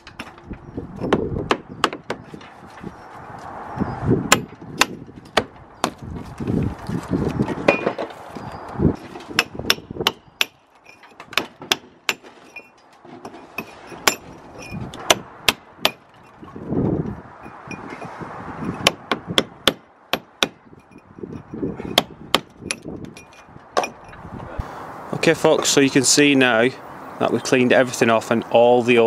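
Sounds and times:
hammer striking steel chisel: 0:13.6 - 0:16.1.

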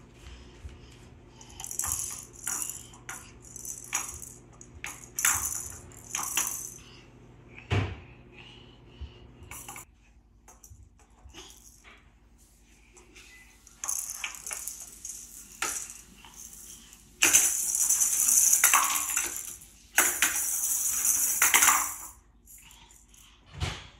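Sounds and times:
toy rattle shaken: 0:01.4 - 0:06.9, 0:09.5 - 0:09.8, 0:13.6 - 0:23.4.

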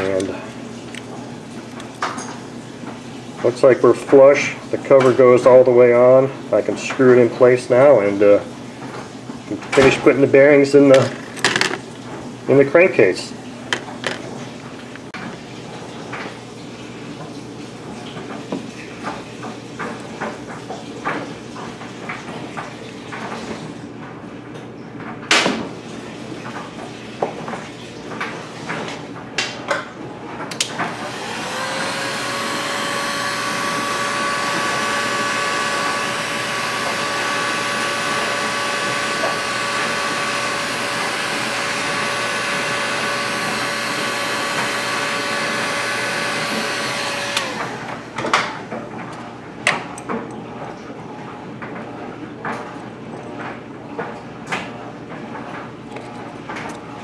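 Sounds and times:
heat gun fan whine: 0:00.0 - 0:15.1, 0:30.4 - 0:50.1
knocks and clicks of handling: 0:11.0 - 0:11.9, 0:13.7 - 0:14.4.

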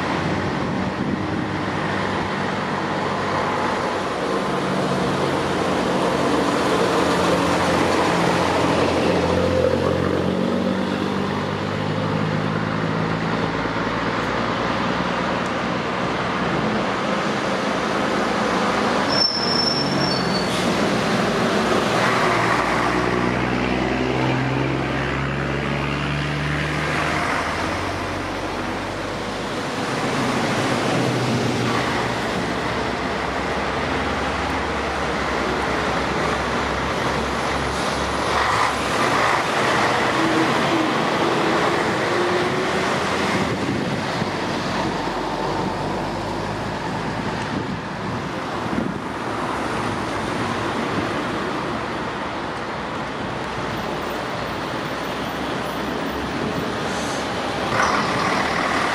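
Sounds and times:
truck engines accelerating: 0:00.0 - 0:58.9
high squeal: 0:19.0 - 0:20.7.

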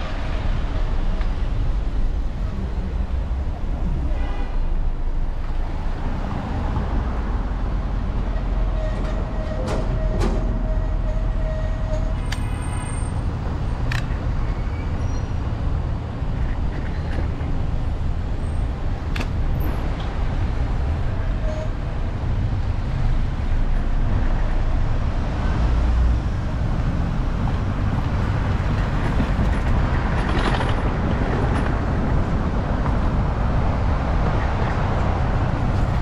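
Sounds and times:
street traffic: 0:00.0 - 0:36.0
wind rumble on microphone: 0:15.7 - 0:36.0.

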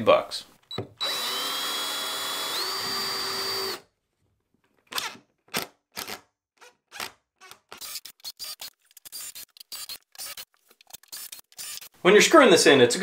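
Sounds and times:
cordless drill motor whine: 0:00.7 - 0:03.8.

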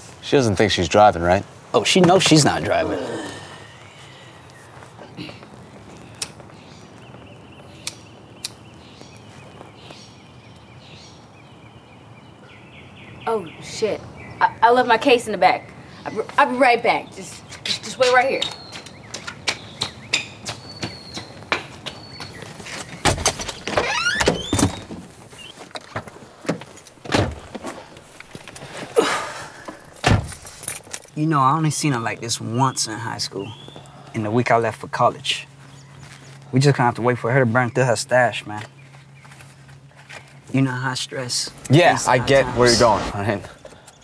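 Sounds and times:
low background hum: 0:24.7 - 0:44.0
car doors opening and shutting: 0:26.0 - 0:27.7, 0:30.0 - 0:30.6.

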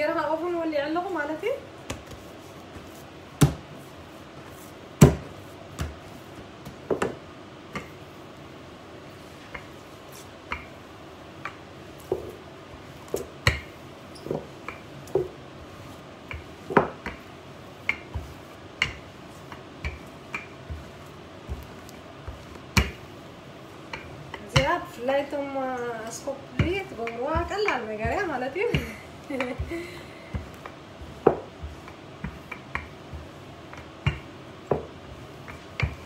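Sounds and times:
rolling pin knocking on countertop: 0:02.8 - 0:03.7, 0:05.0 - 0:08.0, 0:12.0 - 0:12.4, 0:13.1 - 0:15.4, 0:16.3 - 0:23.1, 0:23.9 - 0:24.9, 0:26.5 - 0:29.7, 0:30.3 - 0:36.0.

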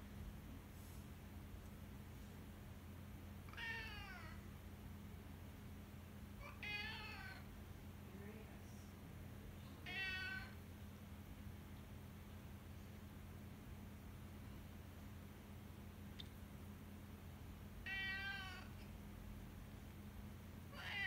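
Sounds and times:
cat meowing: 0:03.5 - 0:04.4, 0:06.4 - 0:07.5, 0:09.8 - 0:10.6, 0:17.8 - 0:18.8, 0:20.7 - 0:21.0.

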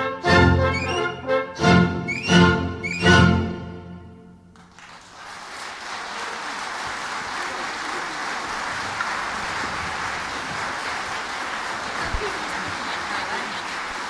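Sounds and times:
audience applauding: 0:04.5 - 0:14.0.

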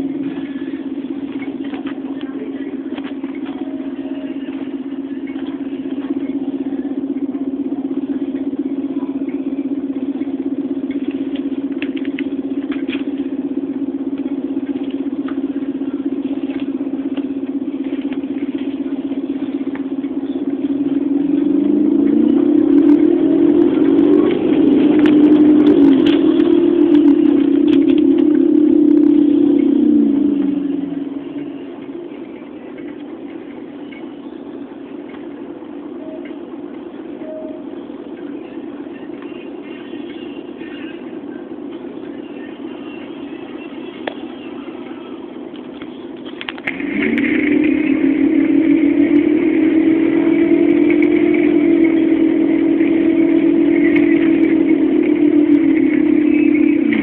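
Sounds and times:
bus engine droning: 0:00.0 - 0:57.0.

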